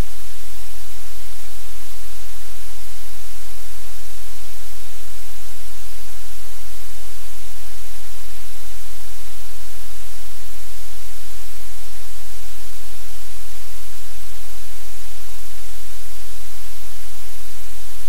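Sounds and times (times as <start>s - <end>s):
loud steady hiss: 0.0s - 18.0s.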